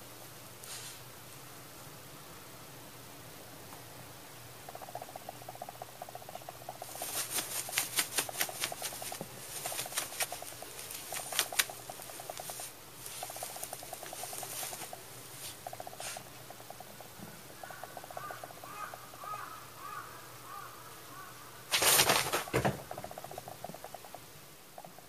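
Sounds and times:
fast pulsing hum: 0:04.5 - 0:19.4
paper bag crinkling: 0:06.9 - 0:14.9, 0:21.7 - 0:22.6.

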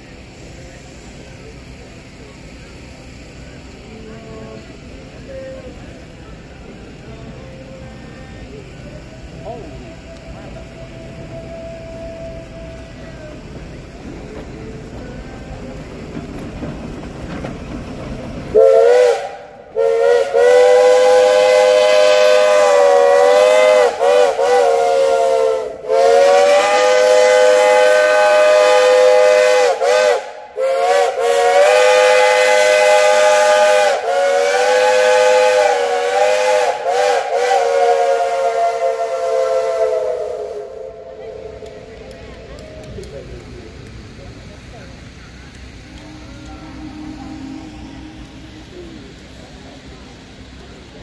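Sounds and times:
low steady rumble: 0:00.0 - 0:21.7, 0:38.3 - 0:51.0
steam locomotive chime whistle: 0:09.2 - 0:13.5, 0:18.5 - 0:41.8, 0:46.0 - 0:49.5.

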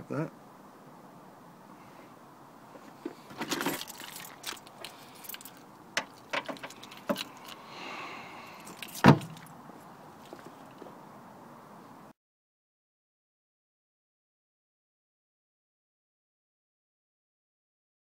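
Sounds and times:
car boot clicks and rattles: 0:03.0 - 0:07.3, 0:08.7 - 0:09.5
tailgate shutting thud: 0:09.0 - 0:09.4.

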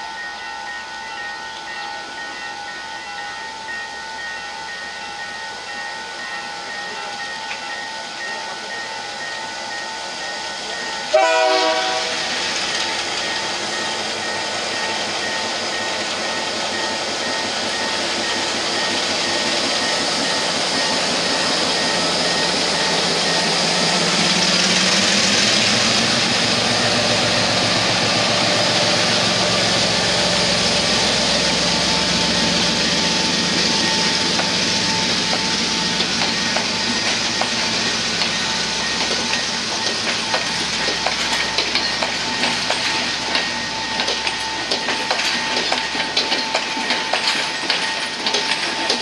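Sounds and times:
diesel locomotive engine working hard: 0:00.0 - 0:49.0
wheels clicking over rail joints: 0:35.2 - 0:49.0.

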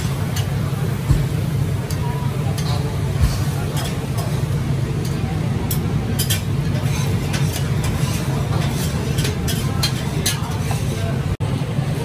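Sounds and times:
kitchen low rumble: 0:00.0 - 0:12.0.

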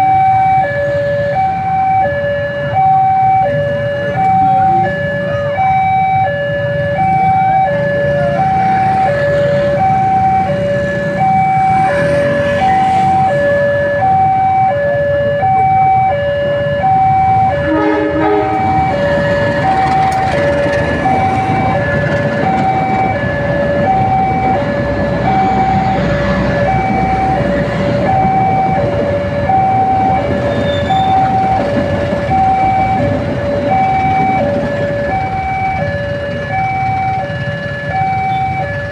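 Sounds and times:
level crossing alarm two-tone: 0:00.0 - 0:38.9
passing train rumble: 0:00.0 - 0:38.9
train horn blast: 0:17.6 - 0:19.0.

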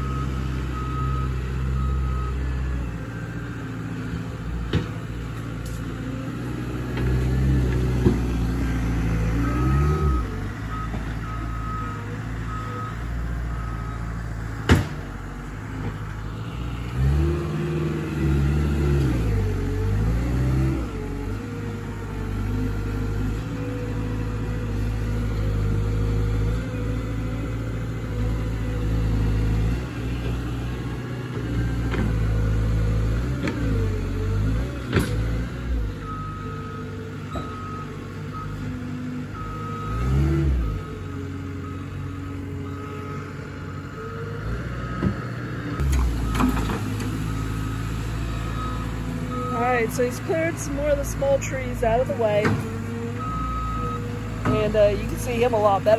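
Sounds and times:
loader engine running: 0:00.0 - 0:55.9.

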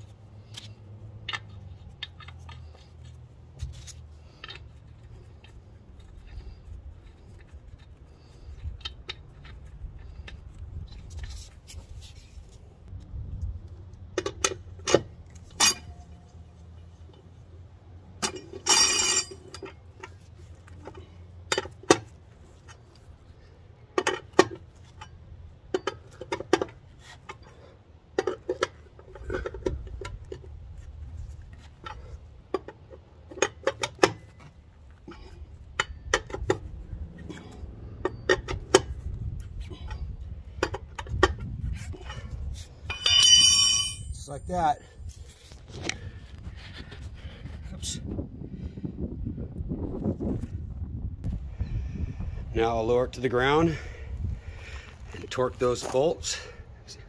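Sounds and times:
metal lug nuts clinking: 0:00.0 - 0:12.3, 0:14.1 - 0:17.3, 0:18.1 - 0:45.2
rattling clatter: 0:42.0 - 0:44.2.

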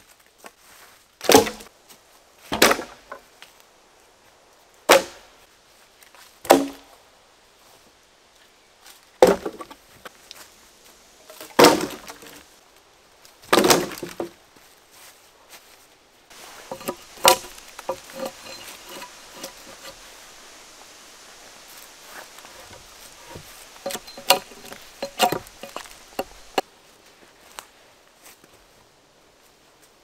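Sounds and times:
logs clattering: 0:01.2 - 0:01.7, 0:02.5 - 0:03.3, 0:06.5 - 0:06.9, 0:09.2 - 0:10.1, 0:11.2 - 0:12.6, 0:13.4 - 0:14.4, 0:16.3 - 0:20.6, 0:21.9 - 0:26.6
logs knocking onto pile: 0:01.2 - 0:01.7, 0:02.5 - 0:03.3, 0:04.9 - 0:05.2, 0:06.4 - 0:07.0, 0:09.2 - 0:09.9, 0:11.3 - 0:12.5, 0:13.4 - 0:14.4, 0:16.5 - 0:20.0, 0:22.2 - 0:26.6.

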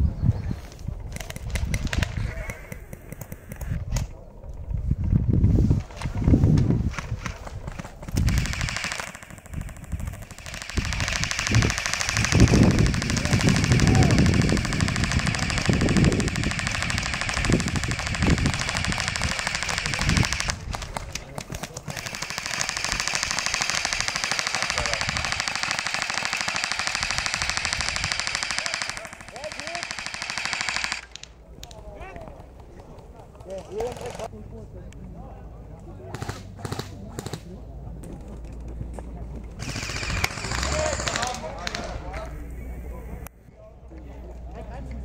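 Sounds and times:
airsoft rifles firing full auto: 0:07.7 - 0:31.3, 0:36.1 - 0:37.4, 0:39.6 - 0:42.0.

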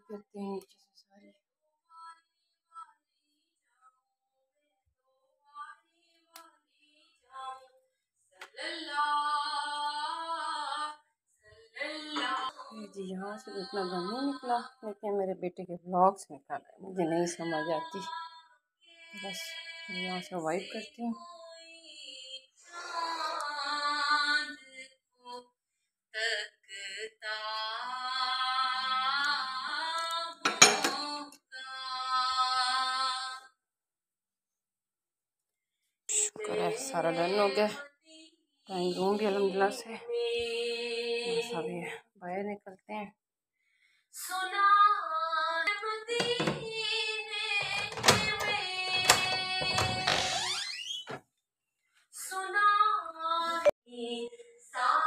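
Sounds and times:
woman singing a song: 0:01.9 - 0:03.1, 0:05.5 - 0:07.8, 0:08.4 - 0:25.5, 0:26.2 - 0:33.6, 0:36.1 - 0:43.0, 0:44.2 - 0:50.8, 0:52.2 - 0:55.0
door handle pressed: 0:46.2 - 0:46.6, 0:47.6 - 0:51.2.

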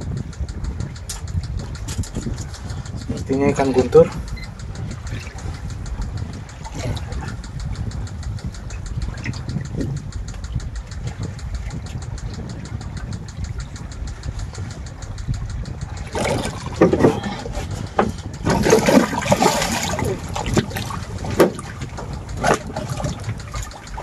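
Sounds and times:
boat engine idling: 0:00.0 - 0:24.0
water splashing: 0:00.0 - 0:24.0.

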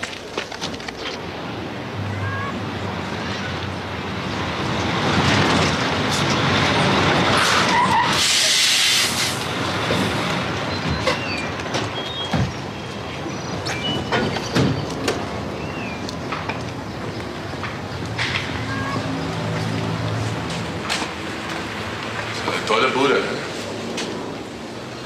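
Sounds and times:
diesel truck engine: 0:01.2 - 0:25.0
air brake hiss: 0:08.0 - 0:09.4.

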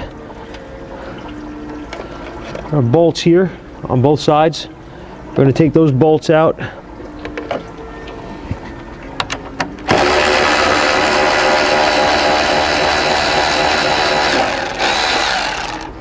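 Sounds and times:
electric ratchet running: 0:09.9 - 0:16.0.

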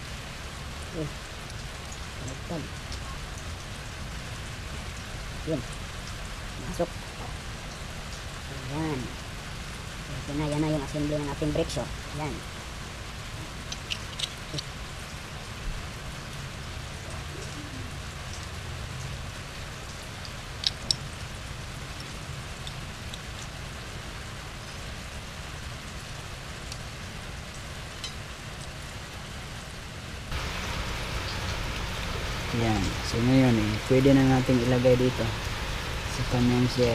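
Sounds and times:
small metallic clicks: 0:13.7 - 0:14.6, 0:20.2 - 0:21.0
steady hiss: 0:19.4 - 0:36.9.

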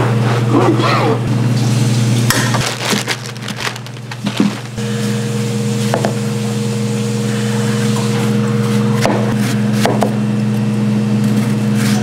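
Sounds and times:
machine hum: 0:01.2 - 0:09.1.

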